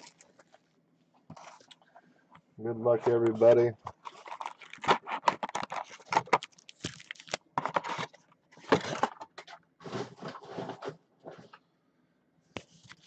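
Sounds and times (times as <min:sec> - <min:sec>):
cardboard box scraping and rustling: 0:09.8 - 0:11.5.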